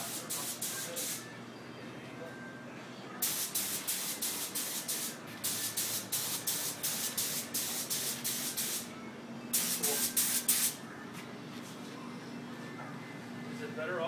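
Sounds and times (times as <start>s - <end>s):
paint spray hissing in spurts: 0.0s - 1.2s, 3.2s - 8.9s, 9.5s - 10.8s.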